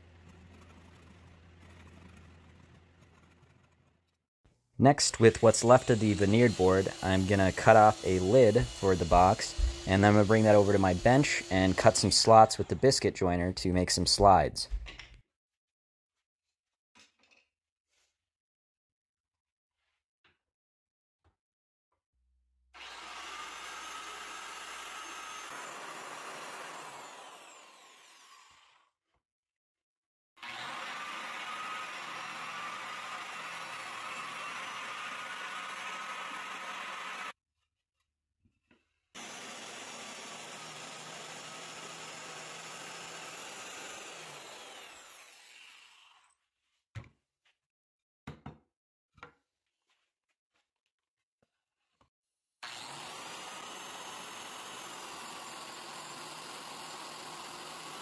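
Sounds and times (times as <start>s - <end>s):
biscuit joiner motor whining: 5.1s - 12.8s, 22.8s - 28.6s, 30.4s - 37.3s, 39.2s - 46.0s, 52.6s - 54.8s.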